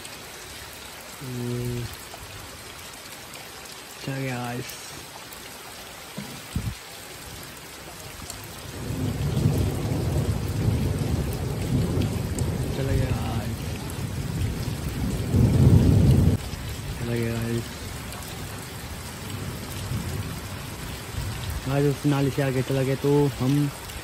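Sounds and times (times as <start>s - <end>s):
rain falling on wet road: 0.0s - 24.0s
low rumble of thunder: 8.6s - 24.0s.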